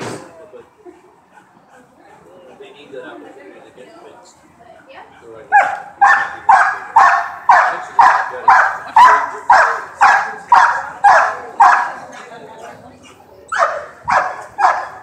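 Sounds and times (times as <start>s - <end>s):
dog barking: 5.5s - 12.0s, 13.5s - 15.0s.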